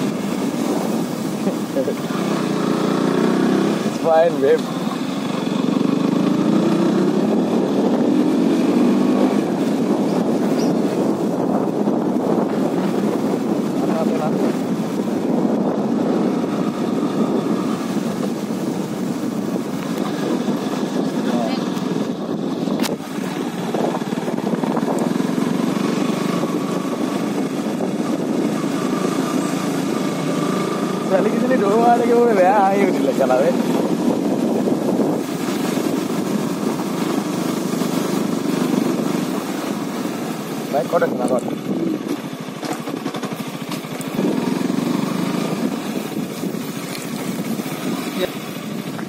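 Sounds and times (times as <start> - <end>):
motorcycle engine running: 0.0 - 49.0.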